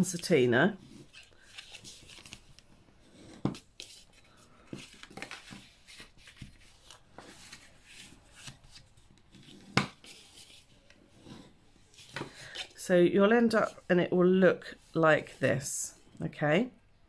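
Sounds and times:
paper rustling: 0.8 - 2.7, 3.3 - 11.0.

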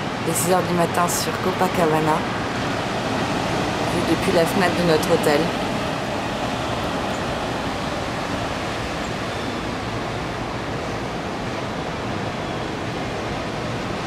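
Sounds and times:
surf washing on beach: 0.0 - 14.0.

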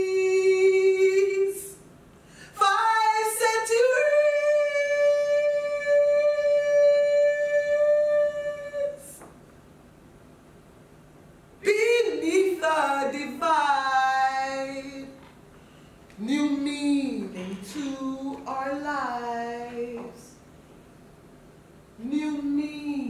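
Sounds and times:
woman singing unaccompanied: 0.0 - 1.8, 2.5 - 9.3, 11.6 - 15.3, 16.2 - 20.4, 22.0 - 23.0.

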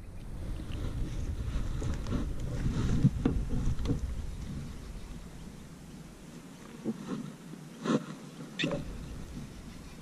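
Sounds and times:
wind rumble: 0.0 - 6.6, 8.6 - 10.0
microphone handling noise: 0.6 - 5.2.

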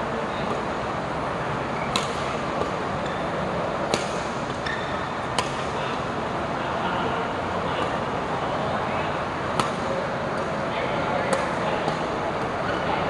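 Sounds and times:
racket hitting shuttlecock: 1.8 - 2.8, 3.8 - 5.8, 9.5 - 10.5, 11.3 - 12.5.

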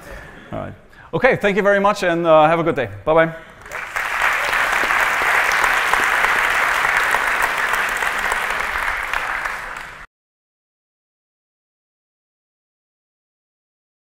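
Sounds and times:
audience applauding: 3.6 - 10.1.

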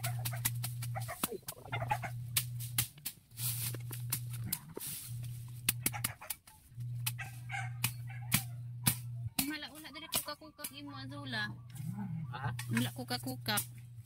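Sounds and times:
knife chopping grass stalks: 0.0 - 1.6, 2.3 - 10.9
low hum: 0.0 - 14.0.

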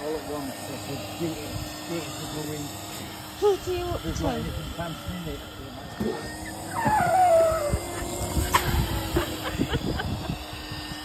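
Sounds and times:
vacuum cleaner motor humming: 0.0 - 11.0
dog whining: 6.4 - 8.7.

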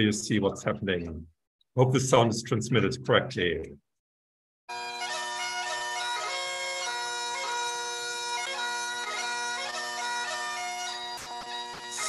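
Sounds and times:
bagpipe music: 4.7 - 12.0.

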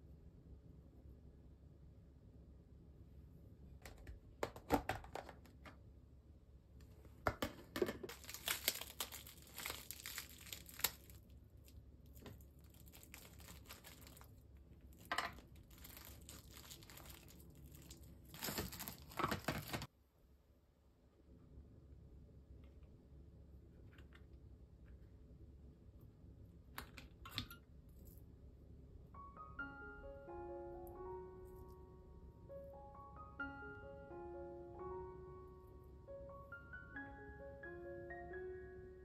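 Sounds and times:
cling film crinkling: 8.1 - 19.9.

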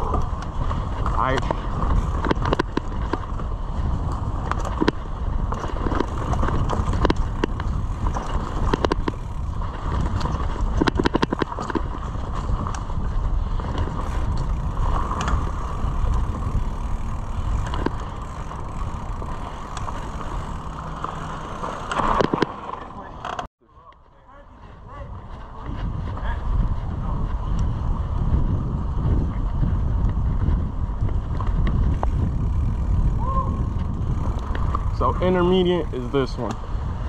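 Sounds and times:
wind on microphone: 0.0 - 21.6, 24.6 - 37.0
tyres rumbling on dirt: 0.0 - 23.5
bike clicks and rattles: 0.0 - 37.0.

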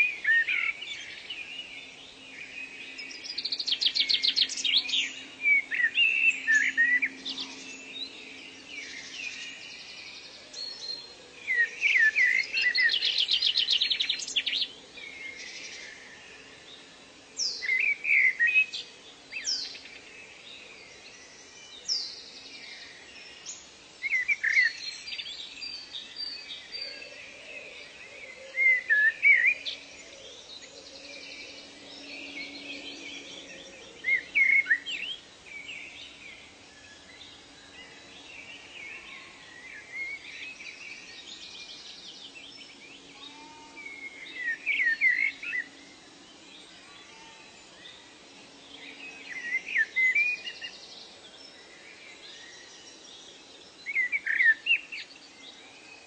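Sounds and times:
songbirds singing: 0.0 - 56.0.

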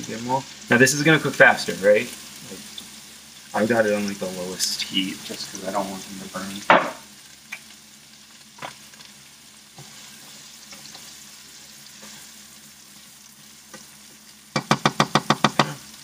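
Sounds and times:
onions sizzling in a pan: 0.0 - 16.0
pan knocking while stirred: 6.7 - 7.1, 14.5 - 15.8.

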